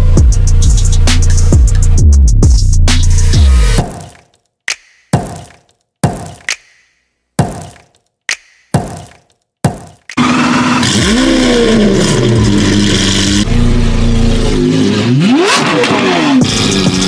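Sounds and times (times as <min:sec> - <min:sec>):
car engine revving hard: 0:10.2 - 0:17.0.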